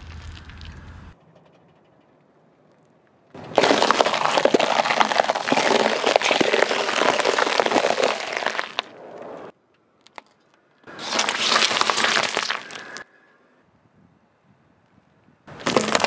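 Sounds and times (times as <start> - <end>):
fruit crunching under tyre: 2.8 - 9.0, 10.0 - 13.0, 15.5 - 16.0
vegetables crunching under car tyre: 3.4 - 10.3, 10.9 - 13.0, 15.5 - 16.0.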